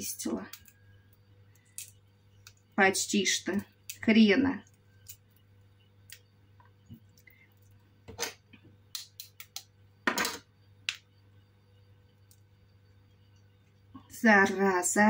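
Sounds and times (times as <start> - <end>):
faint steady hum: 0.0 - 15.0
eggshell crackling as peeled: 3.6 - 7.8, 8.9 - 9.7.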